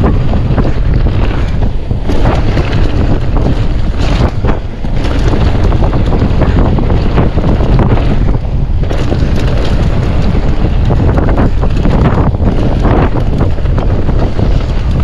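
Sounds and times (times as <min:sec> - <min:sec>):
bike clicking and rattling: 0:00.0 - 0:15.0
wind buffeting microphone: 0:00.0 - 0:15.0.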